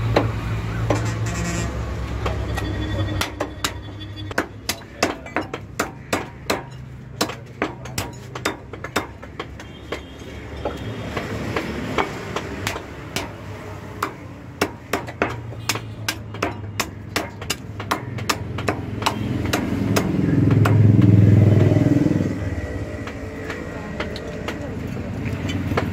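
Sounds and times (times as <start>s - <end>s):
cleaver chopping on wooden block: 3.2s - 21.8s.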